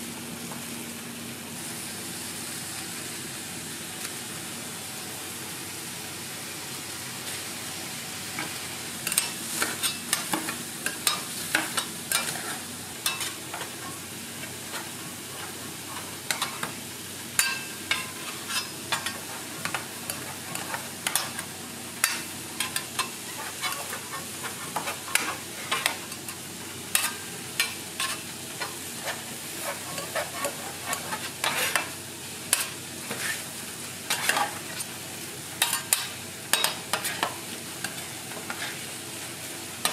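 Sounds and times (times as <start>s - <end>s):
food sizzling on griddle: 0.0s - 39.9s
metal spatula scraping griddle: 9.1s - 16.7s, 17.4s - 31.9s, 32.5s - 35.0s, 35.6s - 37.3s, 37.9s - 38.9s.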